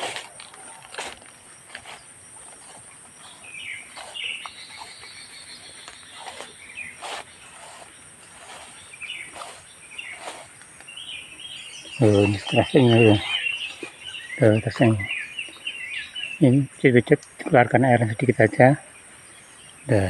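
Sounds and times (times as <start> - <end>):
footsteps through undergrowth: 0.0 - 15.7
birds chirping: 0.0 - 20.0
high insect drone: 0.0 - 20.0.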